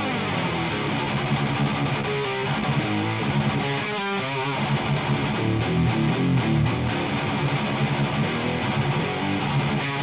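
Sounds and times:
distorted electric guitar riff: 0.0s - 10.0s.

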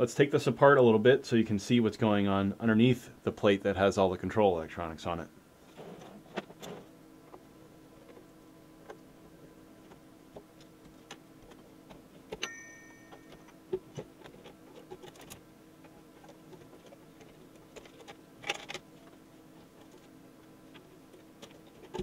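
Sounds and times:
faint steady hum: 0.0s - 22.0s
short metallic ring: 12.4s - 13.3s.

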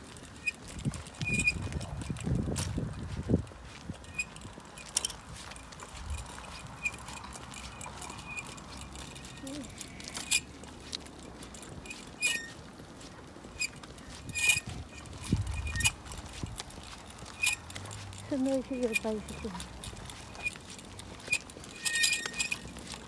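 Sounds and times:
bicycle clicks and rattles: 0.0s - 23.0s
metallic ring: 4.1s - 10.5s, 11.6s - 12.6s, 13.6s - 16.4s, 17.1s - 18.2s, 18.9s - 23.0s.

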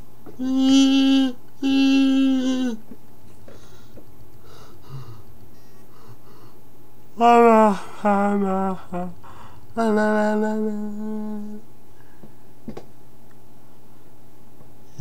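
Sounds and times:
boy singing held note: 0.4s - 2.8s, 7.2s - 11.6s.

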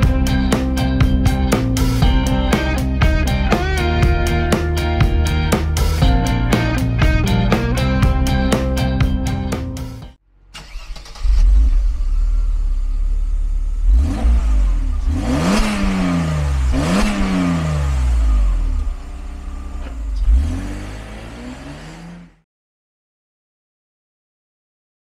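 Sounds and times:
car engine starting and idling: 0.0s - 22.4s
car engine revving: 10.3s - 22.4s.

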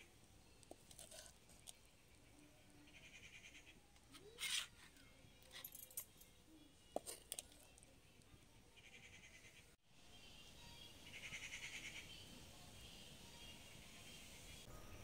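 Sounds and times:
ladle scraping and clinking: 0.7s - 1.8s.

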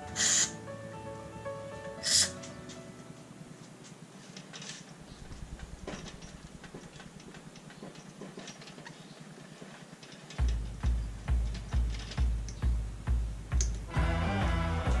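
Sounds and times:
low background hiss: 0.0s - 15.0s
metallic clicks and taps: 10.3s - 12.7s, 13.5s - 13.9s.

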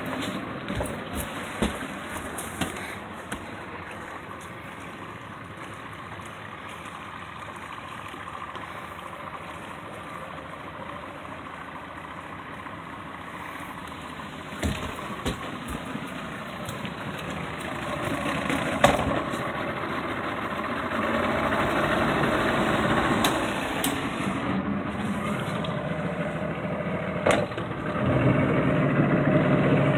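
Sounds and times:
sharp knocks: 14.6s - 16.0s.

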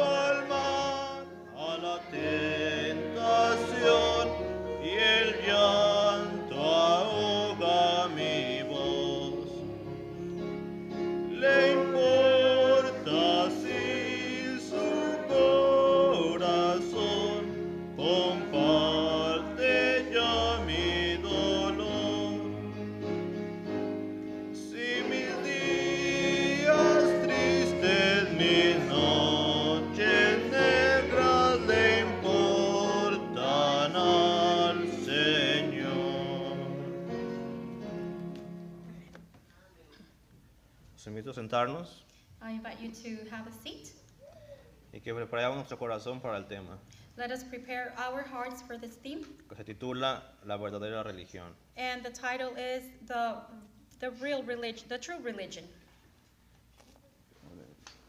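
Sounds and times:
congregation singing a hymn: 0.0s - 39.0s
instrumental accompaniment: 0.0s - 39.3s.

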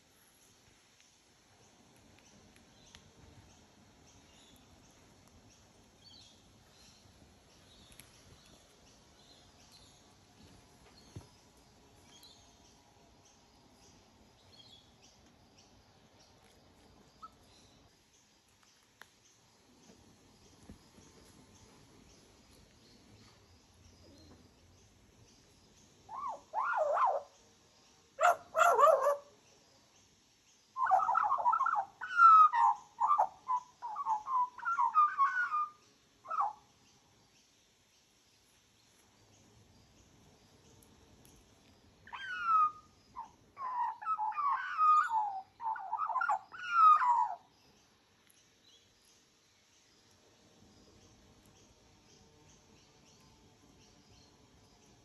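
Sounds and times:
magpie warbling song: 30.8s - 36.6s, 42.1s - 47.4s.

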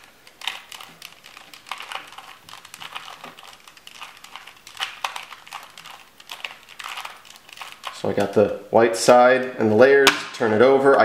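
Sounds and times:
puzzle cube clicking as turned: 0.0s - 8.4s.

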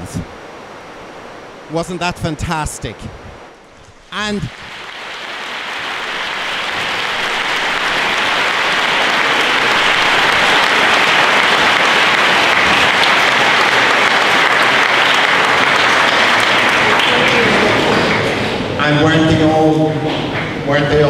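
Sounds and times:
audience applauding: 4.1s - 19.0s.

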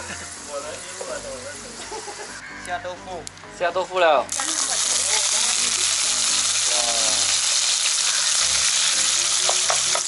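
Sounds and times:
tofu sizzling in oil: 4.3s - 10.0s.

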